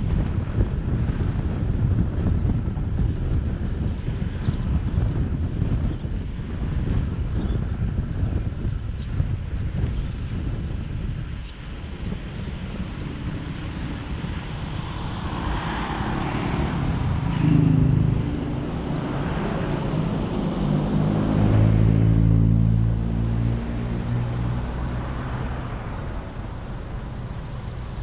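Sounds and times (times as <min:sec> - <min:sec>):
car engine hum: 0:09.4 - 0:28.0
passing vehicle engine: 0:11.7 - 0:28.0
tyres on wet road: 0:11.9 - 0:28.0.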